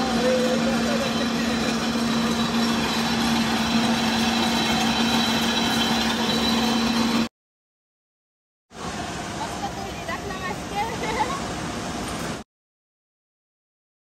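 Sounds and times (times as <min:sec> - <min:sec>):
mill machinery din: 0:00.0 - 0:07.3.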